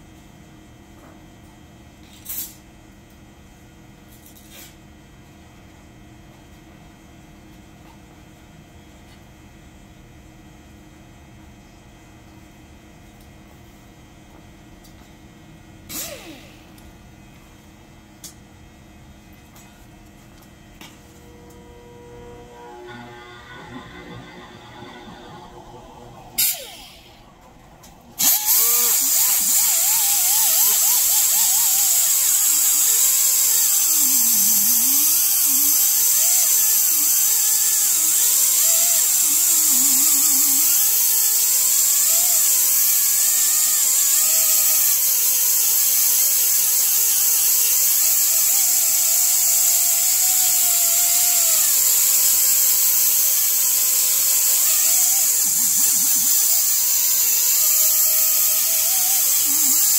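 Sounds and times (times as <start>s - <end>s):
air sander hissing: 15.9s - 16.8s, 20.8s - 59.9s
whine rising and falling in pitch: 20.8s - 30.0s.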